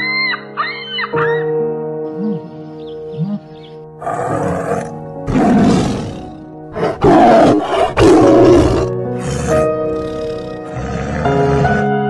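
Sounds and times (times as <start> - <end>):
background music: 0.0 - 12.0
tiger roaring: 4.0 - 12.0.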